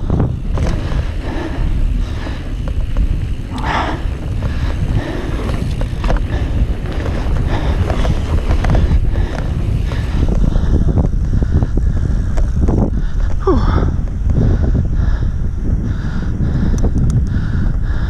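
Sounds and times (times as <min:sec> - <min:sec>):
bike clicks and rattles: 0:00.0 - 0:18.0
wind buffeting microphone: 0:00.0 - 0:18.0
tyres rolling over dirt: 0:00.1 - 0:11.4.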